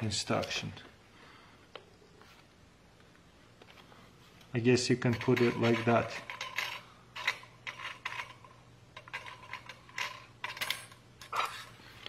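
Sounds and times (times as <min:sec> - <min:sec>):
metal plates clicking and tapping: 0:05.0 - 0:11.5.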